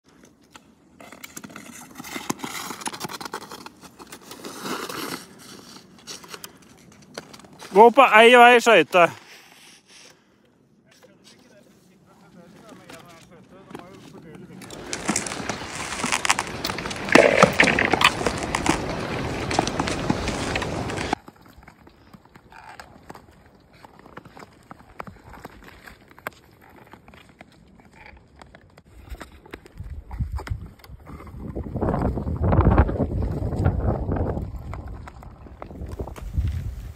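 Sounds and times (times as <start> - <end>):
ice skate blades scraping ice: 0.2 - 10.4, 11.0 - 36.9
ski pole tips clicking on ice: 14.6 - 21.2.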